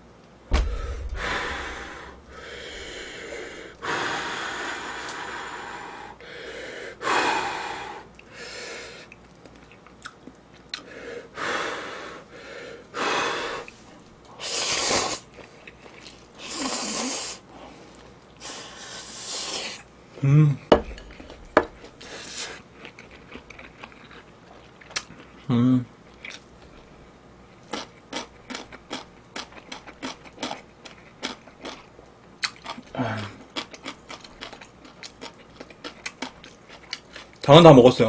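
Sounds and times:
person blowing on noodles: 0:14.4 - 0:15.3, 0:16.4 - 0:17.4, 0:18.4 - 0:19.8
person slurping noodles: 0:16.4 - 0:17.4
wet chewing clicks: 0:27.7 - 0:37.5.

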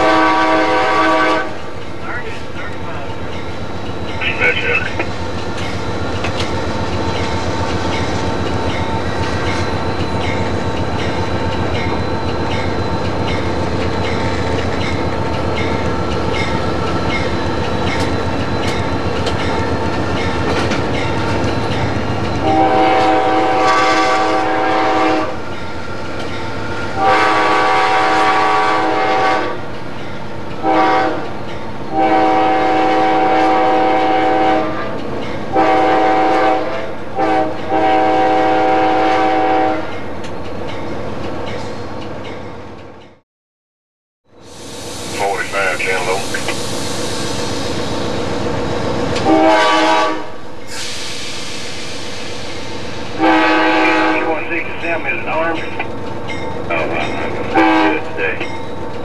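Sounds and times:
locomotive air horn: 0:00.0 - 0:01.6, 0:22.4 - 0:25.4, 0:27.0 - 0:29.6, 0:30.6 - 0:31.2, 0:31.9 - 0:34.9, 0:35.5 - 0:39.9, 0:49.2 - 0:50.9, 0:53.2 - 0:54.3, 0:57.5 - 0:58.1
diesel locomotive engine rumble: 0:00.0 - 0:43.2, 0:44.3 - 0:59.0.

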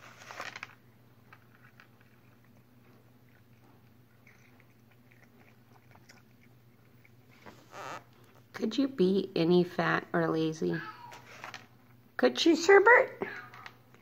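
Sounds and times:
cat crunching treats: 0:00.0 - 0:08.5, 0:11.2 - 0:12.0.

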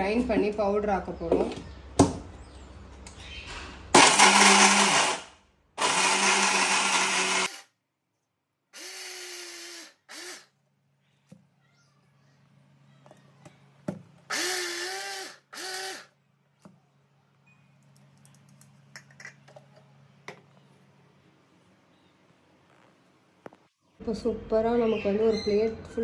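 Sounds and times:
mixer grinder grinding nuts: 0:04.0 - 0:07.7, 0:08.8 - 0:10.5, 0:14.3 - 0:16.1.

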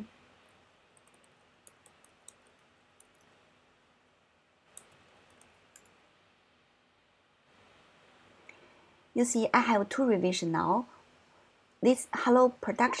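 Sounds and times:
keyboard typing clicks: 0:01.0 - 0:03.4, 0:04.6 - 0:06.0.

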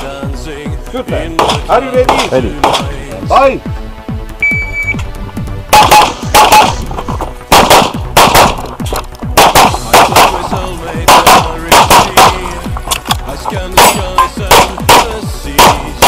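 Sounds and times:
rapid pistol fire: 0:05.8 - 0:06.8, 0:07.5 - 0:08.7, 0:09.4 - 0:12.6, 0:13.8 - 0:16.0.

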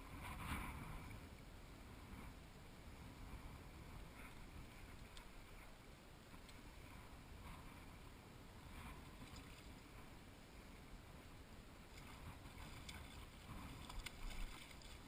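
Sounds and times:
wind: 0:00.0 - 0:15.0
river water flowing: 0:03.7 - 0:15.0
light ticks: 0:04.3 - 0:05.4, 0:06.3 - 0:06.6.

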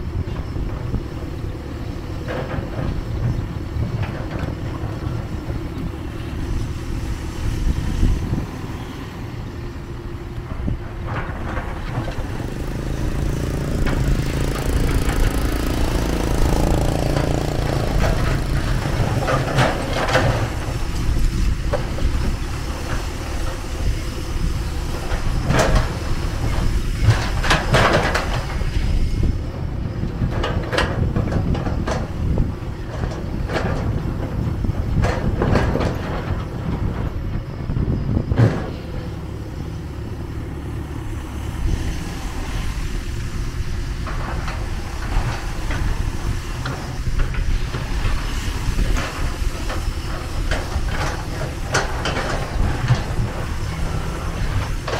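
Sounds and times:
excavator diesel engine rumbling: 0:00.0 - 0:54.9
motorbike engine passing: 0:11.7 - 0:20.7.

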